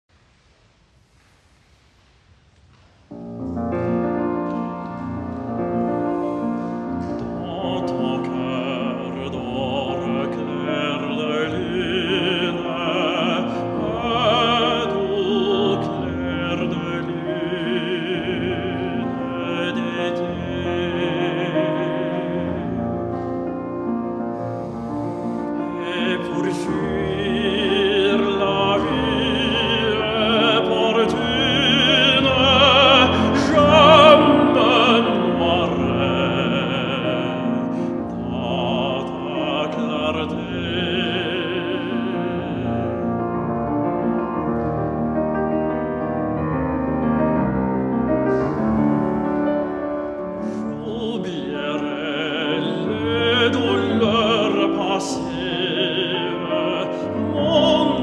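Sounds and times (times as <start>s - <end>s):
baritone singing operatically: 7.0s - 23.6s, 25.2s - 44.2s, 48.3s - 58.0s.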